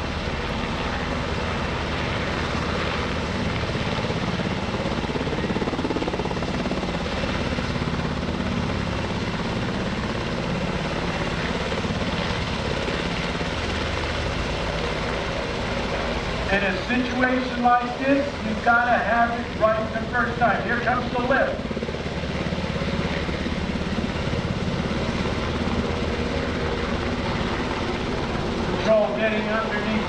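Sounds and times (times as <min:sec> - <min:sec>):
helicopter rotor beating: 0:00.0 - 0:30.0
turboshaft engines rushing: 0:00.0 - 0:30.0.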